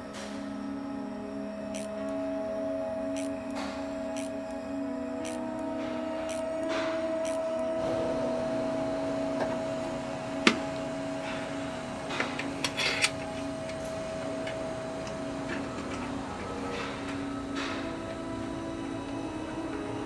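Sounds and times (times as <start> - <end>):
steady hum: 0.0 - 20.0.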